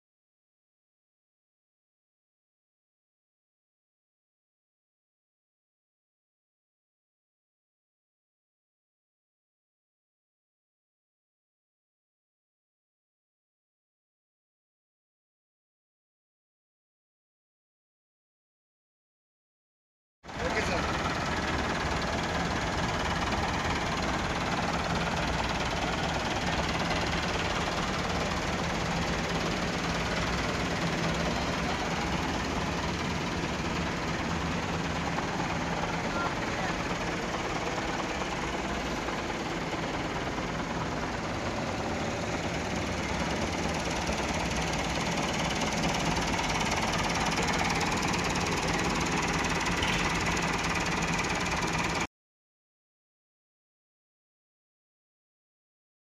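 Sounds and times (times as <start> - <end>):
tractor diesel engine idling: 20.3 - 52.1.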